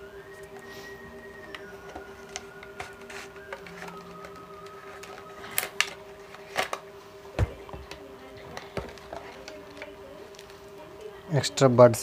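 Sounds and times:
steady humming tone: 0:00.0 - 0:12.0
plastic packaging crackling: 0:01.4 - 0:06.9, 0:07.5 - 0:10.7.

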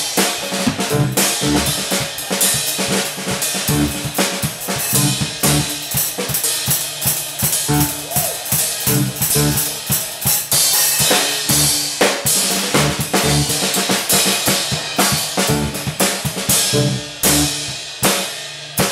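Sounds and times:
drum kit playing: 0:00.0 - 0:18.9
keyboard: 0:00.5 - 0:02.2, 0:03.6 - 0:05.9, 0:07.7 - 0:08.1, 0:08.9 - 0:09.8, 0:12.8 - 0:13.7, 0:15.4 - 0:16.0, 0:16.6 - 0:17.6
electric bass notes: 0:00.7 - 0:02.0, 0:03.6 - 0:06.0, 0:07.6 - 0:08.1, 0:08.8 - 0:09.9, 0:11.4 - 0:12.0, 0:12.7 - 0:13.8, 0:15.4 - 0:17.8.

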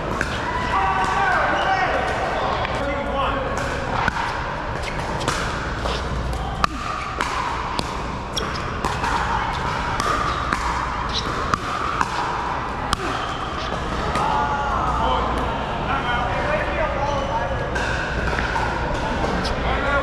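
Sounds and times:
paddles hitting plastic ball: 0:00.0 - 0:01.4, 0:02.0 - 0:14.3
indoor hall background: 0:00.0 - 0:20.0.

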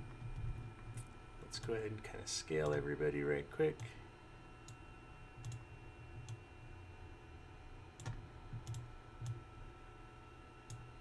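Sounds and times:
computer mouse clicking: 0:05.4 - 0:05.6, 0:08.0 - 0:09.4.

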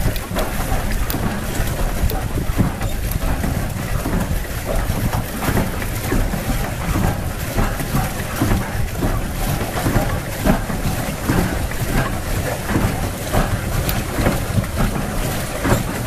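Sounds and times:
water splashing against boat hull: 0:00.0 - 0:16.0
wind rumbling on microphone: 0:00.0 - 0:16.0.

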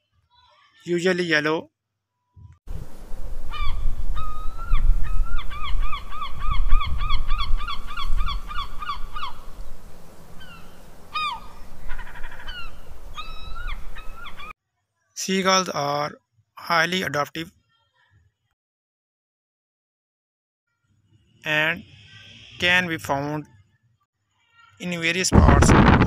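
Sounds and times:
gulls calling: 0:03.5 - 0:09.7, 0:10.3 - 0:14.5.

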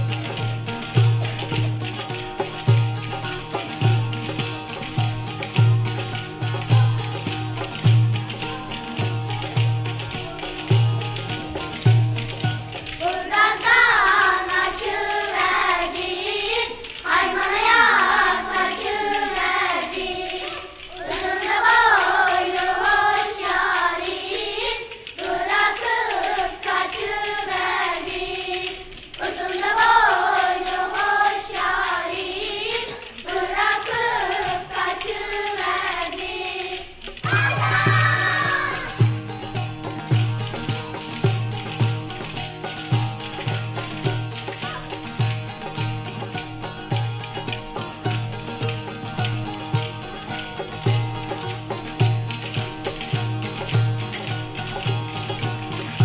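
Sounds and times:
girl singing folk song: 0:00.0 - 0:40.1, 0:43.4 - 0:45.8
light rhythmic clicking: 0:00.0 - 0:56.0.

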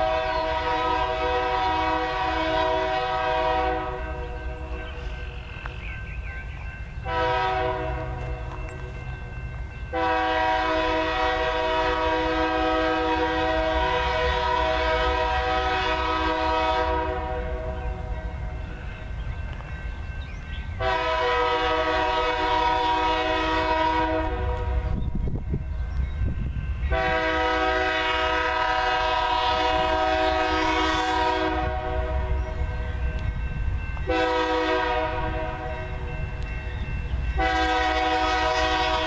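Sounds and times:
locomotive air horn blasts: 0:00.0 - 0:05.1, 0:07.0 - 0:08.5, 0:09.9 - 0:17.8, 0:20.8 - 0:25.0, 0:26.9 - 0:32.4, 0:34.1 - 0:36.0, 0:37.4 - 0:39.0
low rumble of train: 0:00.0 - 0:39.0.

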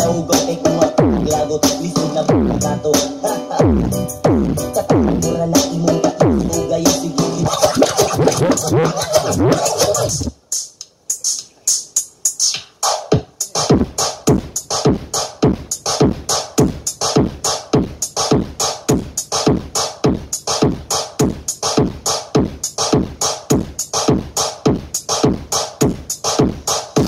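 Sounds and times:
electronic dance music: 0:00.0 - 0:10.4
ticking hi-hats: 0:03.9 - 0:27.0
drum machine kicks: 0:07.4 - 0:10.3, 0:12.9 - 0:27.0.

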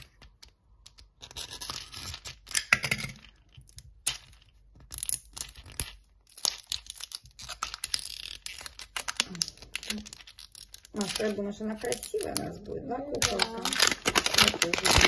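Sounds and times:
plastic wrap crinkling and tearing: 0:00.0 - 0:02.6, 0:04.8 - 0:15.0.

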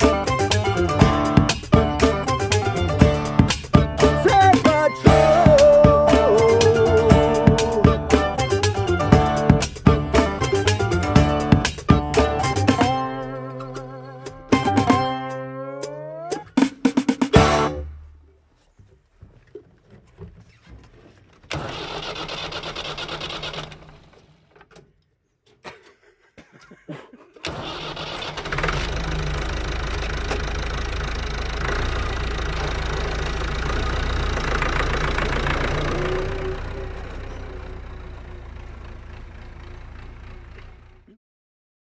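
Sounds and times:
tractor engine running: 0:00.0 - 0:24.8, 0:27.4 - 0:41.2
tractor engine cranking: 0:00.0 - 0:25.6, 0:27.4 - 0:41.2.

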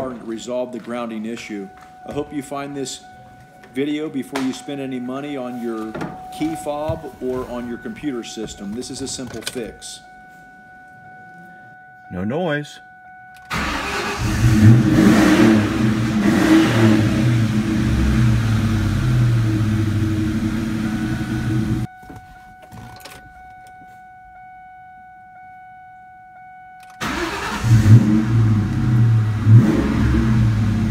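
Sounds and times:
car engine revving: 0:13.5 - 0:21.9, 0:27.0 - 0:30.9.

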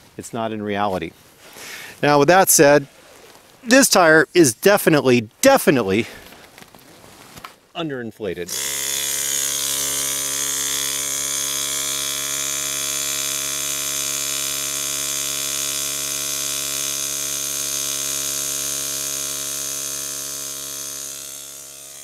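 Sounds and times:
electric tire compressor running: 0:08.5 - 0:22.0.

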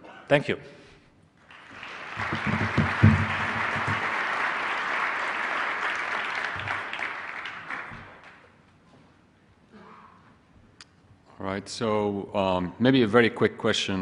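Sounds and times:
audience applauding: 0:01.4 - 0:08.5
low knocks: 0:02.3 - 0:04.0.

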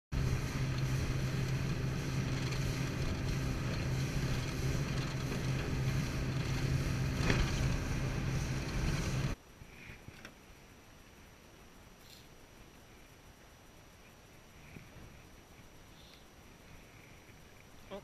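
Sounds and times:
motorboat engine running: 0:00.1 - 0:09.4
wind and water rush: 0:00.1 - 0:09.4.

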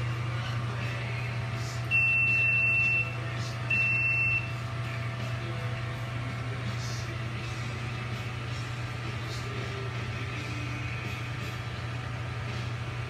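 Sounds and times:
steady low hum: 0:00.0 - 0:13.0
high electronic beeps: 0:01.9 - 0:04.5.

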